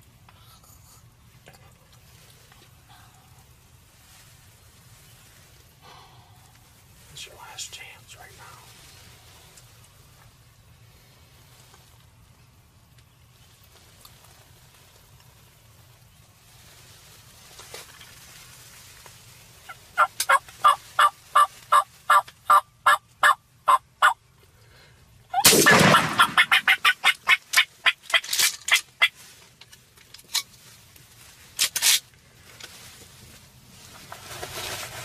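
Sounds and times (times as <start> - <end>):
wild turkey yelping: 19.7 - 24.2, 25.3 - 28.2
shotgun blast: 25.4 - 26.6.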